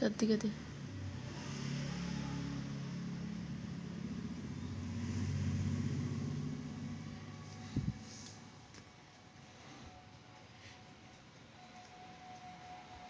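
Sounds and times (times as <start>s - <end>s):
vehicle engine passing by: 0.5s - 8.6s.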